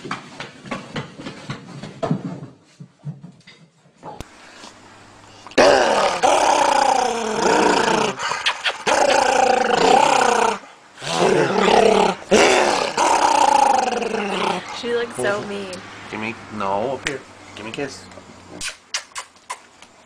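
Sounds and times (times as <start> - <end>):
dog growling: 5.5 - 15.6.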